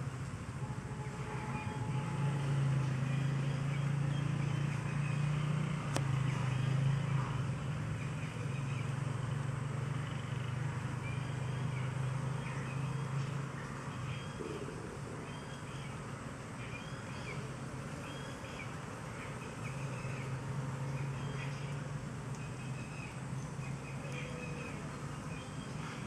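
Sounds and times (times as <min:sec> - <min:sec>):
engine humming: 0:00.0 - 0:26.0
faint bird chirps: 0:09.9 - 0:26.0.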